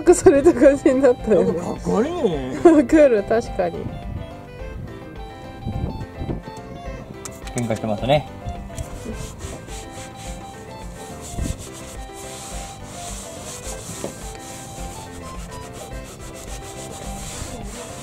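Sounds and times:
towel rubbing on plastic: 8.8 - 18.0.

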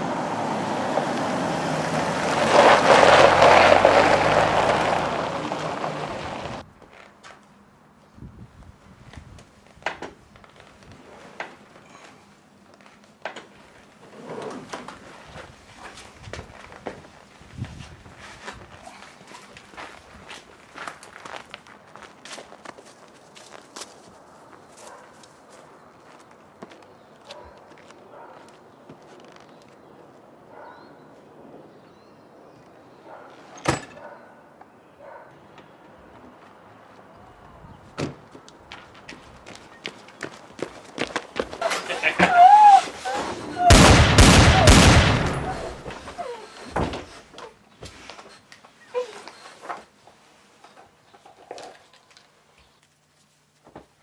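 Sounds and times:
rustling and scuffling: 9.0 - 29.9, 45.6 - 54.0.

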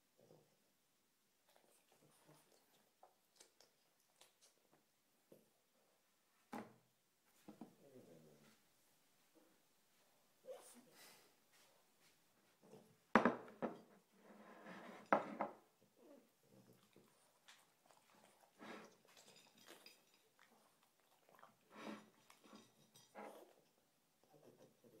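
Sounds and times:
dog eating from dish: 16.6 - 23.8.

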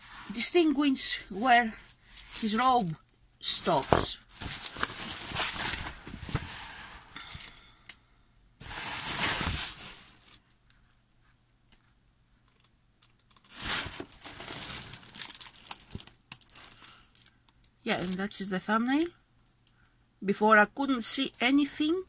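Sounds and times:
plastic film crinkling: 2.1 - 7.6, 8.6 - 10.4, 13.4 - 18.4.

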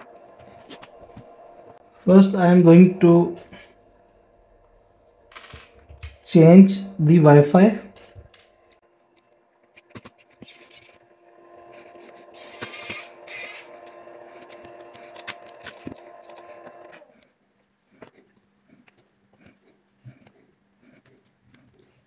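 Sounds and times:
electric screwdriver running: 12.3 - 17.0.

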